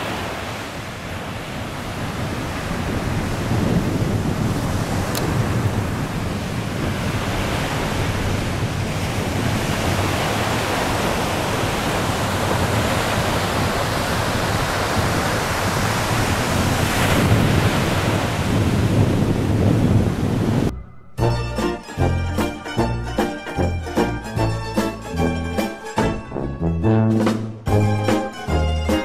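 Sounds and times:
surf breaking on sandy shore: 0:00.0 - 0:20.7
wind buffeting microphone: 0:00.0 - 0:20.8.

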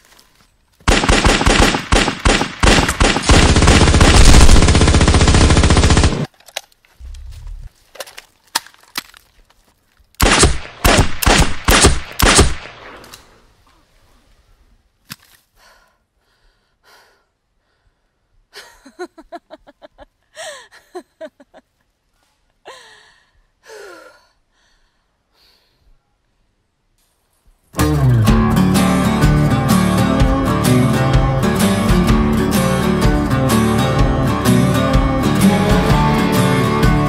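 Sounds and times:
gunshots: 0:00.9 - 0:06.3, 0:10.2 - 0:13.1.

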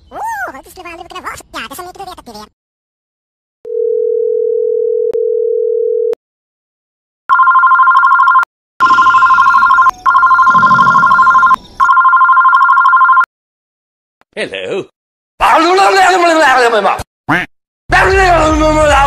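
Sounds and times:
telephone ringing: 0:03.7 - 0:06.2, 0:07.3 - 0:13.3.

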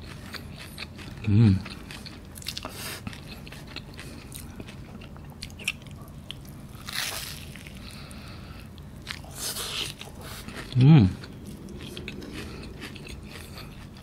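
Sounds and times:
biting into pastry: 0:00.0 - 0:08.0
chewing: 0:00.0 - 0:14.0
pastry crackling: 0:05.5 - 0:10.7.

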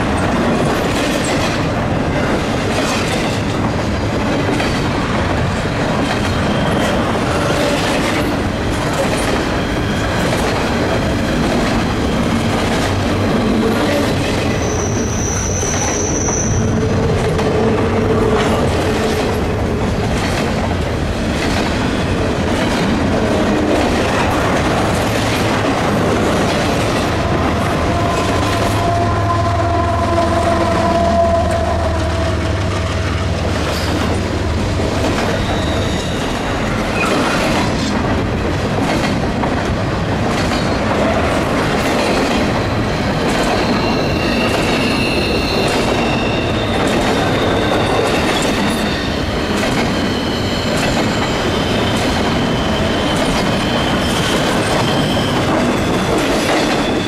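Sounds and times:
train wheels clicking over rail joints: 0:00.0 - 0:29.0, 0:32.5 - 0:57.0
wheel flanges squealing: 0:13.7 - 0:18.8, 0:35.1 - 0:37.4, 0:43.6 - 0:57.0.

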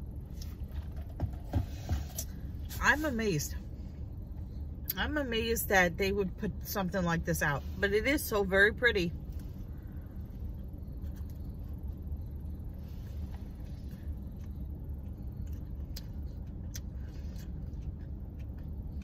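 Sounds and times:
car idling: 0:00.0 - 0:19.0
wet mouth clicks from chewing: 0:14.3 - 0:19.0.

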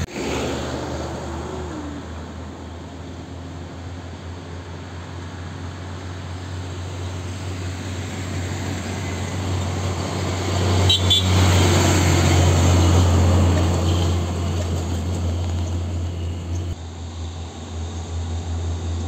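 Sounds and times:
diesel truck passing by: 0:00.0 - 0:19.0.

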